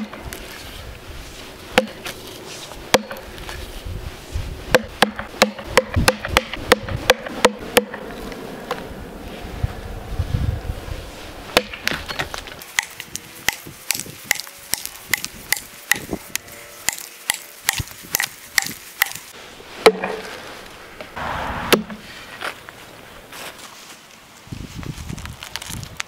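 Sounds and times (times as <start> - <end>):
axe chopping into a log: 1.8 - 2.1, 2.9 - 3.2, 4.7 - 8.0, 11.6 - 12.2, 16.9 - 19.2, 19.8 - 20.2, 21.5 - 22.0.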